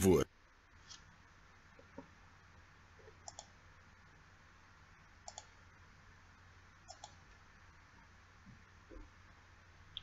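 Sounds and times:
faint low hum: 0.0 - 10.0
computer mouse double-clicking: 3.3 - 3.5, 5.3 - 5.5, 6.9 - 7.2.

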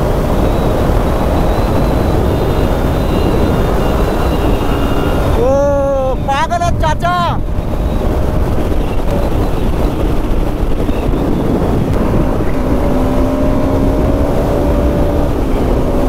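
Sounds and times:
motorcycle engine drone: 0.0 - 16.0
wind rush on microphone: 0.0 - 16.0.

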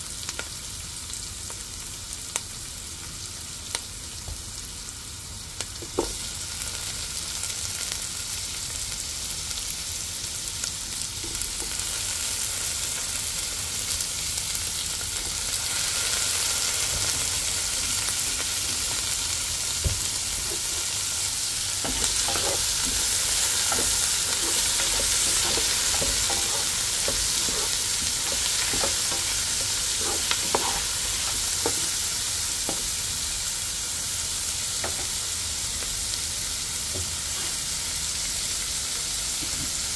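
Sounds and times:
food sizzling in a frying pan: 0.0 - 39.9
spatula scraping a pan: 20.4 - 21.2, 21.8 - 32.1, 37.2 - 37.7.

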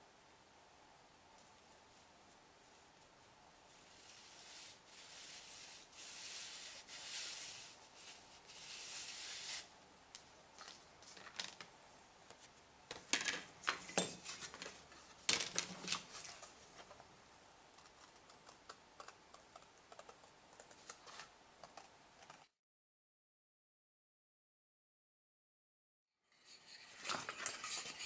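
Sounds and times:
paper rustling: 26.7 - 28.0.

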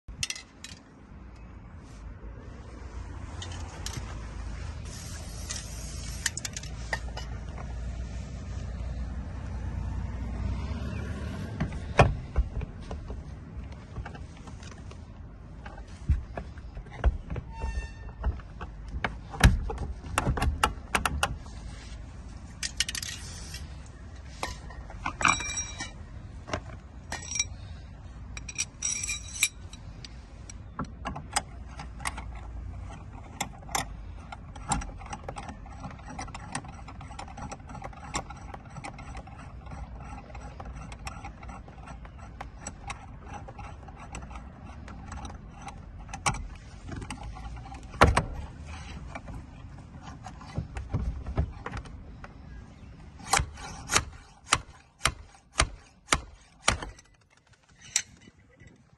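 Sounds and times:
metallic clicks and rattles: 0.1 - 1.5, 28.3 - 52.4.

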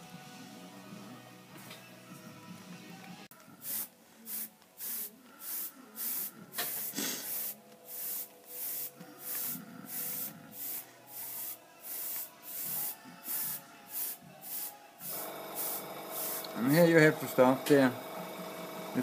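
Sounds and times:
airbrush hissing bursts: 3.6 - 19.0.

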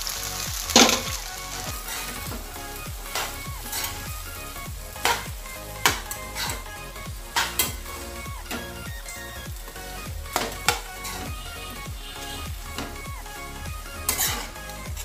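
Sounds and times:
background music with a beat: 0.0 - 15.0
low sizzle of frying: 0.0 - 15.0
metal spoons scraping a pan: 1.8 - 9.2, 10.3 - 14.9.

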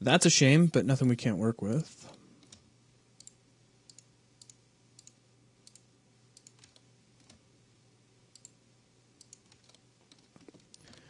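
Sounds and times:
low steady hum: 0.0 - 11.0
computer mouse clicks: 2.1 - 2.6, 3.2 - 7.4, 8.3 - 8.6, 9.2 - 11.0.

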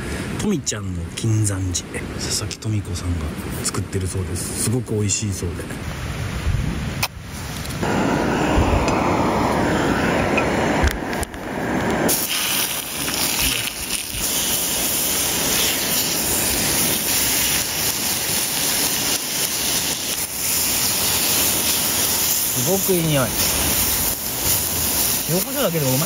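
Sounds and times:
wind rumble on microphone: 5.8 - 18.8
gas stove burner: 7.8 - 26.0
meat sizzling in hot oil: 12.1 - 26.0.

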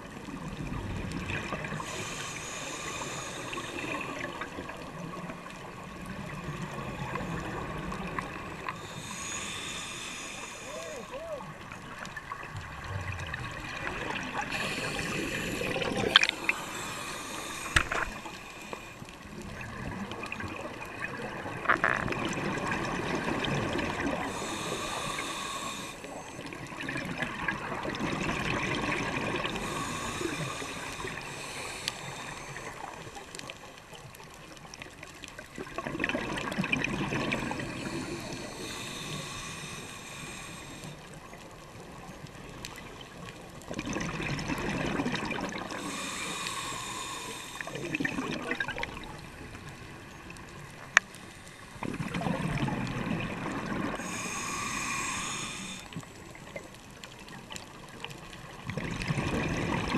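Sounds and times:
regulator inhale hiss: 1.5 - 4.5, 6.8 - 12.0, 14.2 - 19.2, 24.0 - 26.7, 29.4 - 33.5, 37.2 - 41.3, 45.5 - 48.0, 50.8 - 51.8, 53.9 - 56.6.

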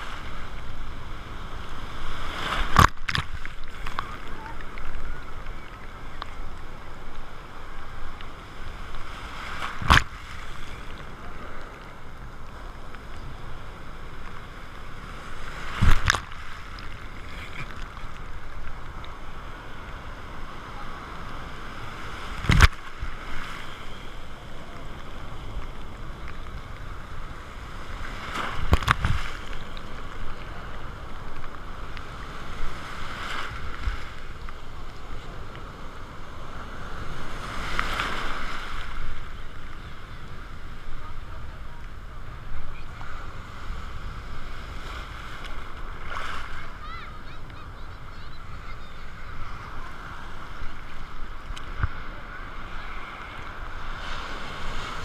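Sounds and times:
breaking surf: 0.0 - 55.0
waves slapping camera: 0.0 - 55.0.

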